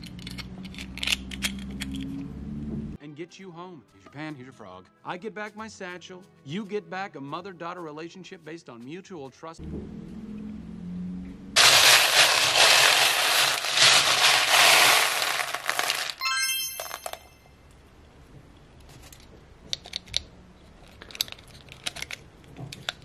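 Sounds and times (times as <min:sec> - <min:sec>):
plastic beads rattling: 0:11.6 - 0:17.3
short bright chime: 0:16.2 - 0:17.5.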